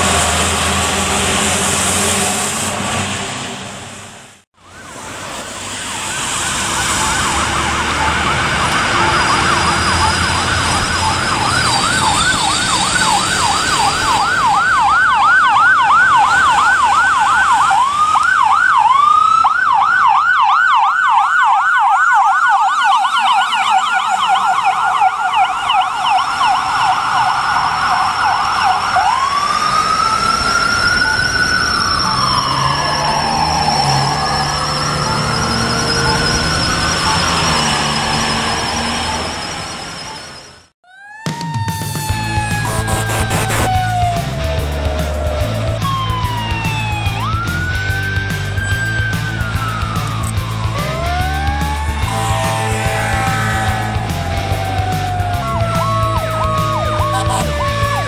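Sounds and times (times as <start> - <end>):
ambulance siren: 4.6 - 58.0.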